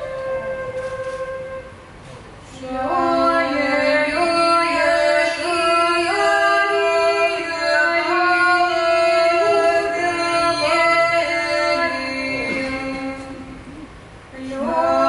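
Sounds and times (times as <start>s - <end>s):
women singing in parts: 2.5s - 13.4s, 14.3s - 15.0s.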